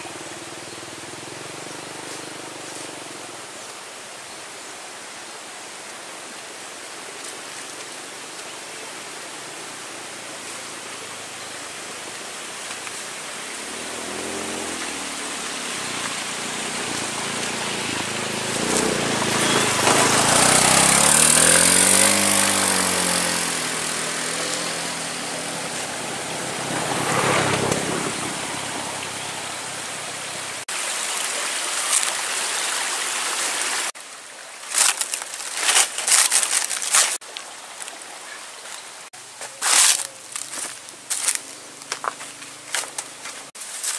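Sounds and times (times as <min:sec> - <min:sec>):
motor scooters passing: 0:00.0 - 0:03.4, 0:13.3 - 0:30.7
sharp crackles: 0:34.7 - 0:37.2.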